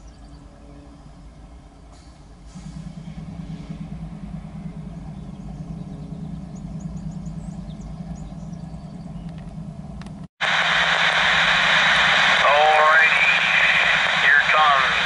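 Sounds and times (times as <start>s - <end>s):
engine idling: 1.8s - 15.0s
loud steady rushing noise: 10.4s - 15.0s.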